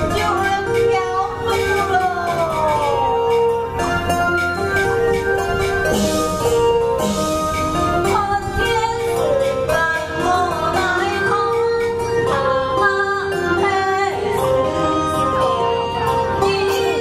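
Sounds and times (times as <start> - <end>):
sustained instrument notes: 0.0 - 17.0
woman singing opera: 8.1 - 17.0.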